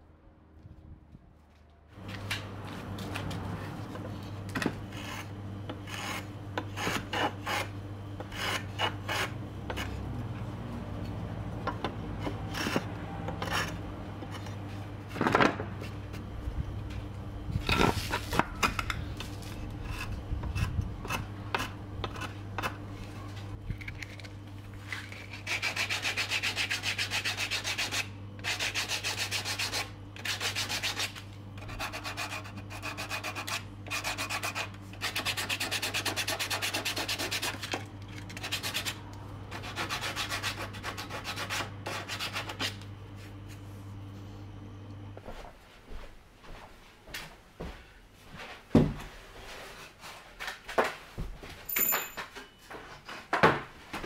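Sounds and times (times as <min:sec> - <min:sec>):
hand plane scraping wood: 0:04.9 - 0:10.0, 0:12.2 - 0:14.5
sanding block rubbing on wood: 0:05.0 - 0:10.0, 0:25.3 - 0:37.6, 0:38.4 - 0:42.7.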